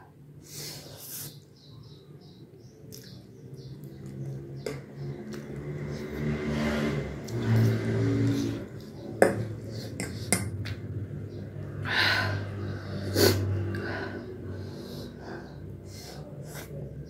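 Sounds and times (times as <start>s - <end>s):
sharp sniffs: 0.4s - 1.5s.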